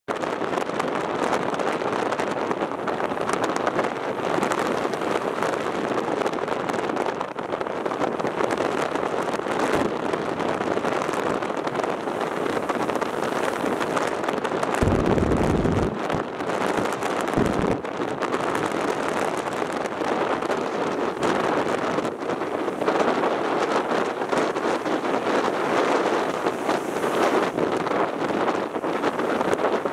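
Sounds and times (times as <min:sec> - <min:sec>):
wind buffeting microphone: 0:00.1 - 0:29.9
ocean surf breaking on rocks: 0:09.5 - 0:29.9.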